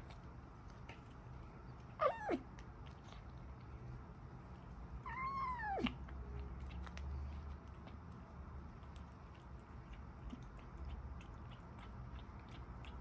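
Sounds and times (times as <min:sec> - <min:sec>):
kitten meowing: 0:05.0 - 0:05.9.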